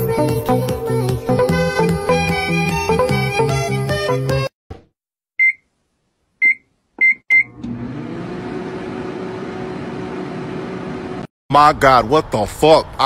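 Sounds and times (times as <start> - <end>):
music: 0.0 - 4.5
microwave keypad beeps: 5.4 - 5.7, 6.4 - 7.5
microwave running hum: 7.3 - 11.2.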